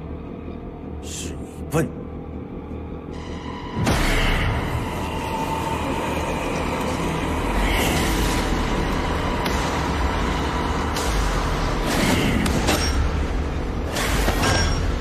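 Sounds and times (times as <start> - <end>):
ominous low rumbling drone: 0.0 - 15.0.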